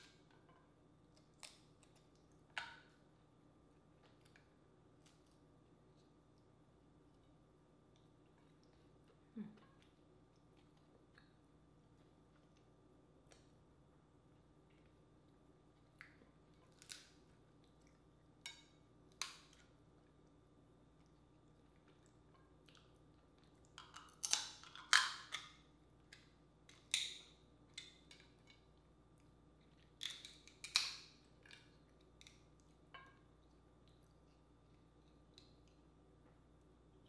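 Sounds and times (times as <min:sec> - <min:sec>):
crab shell cracking: 0:16.7 - 0:17.2, 0:23.8 - 0:28.3, 0:30.0 - 0:32.4.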